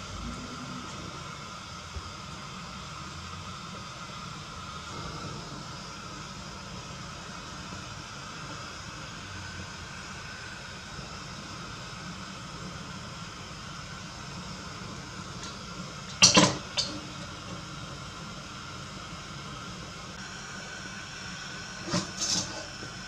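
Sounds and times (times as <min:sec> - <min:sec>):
gas burner flame rushing: 0:00.0 - 0:23.0
wok clattering on stove grate: 0:16.1 - 0:17.1.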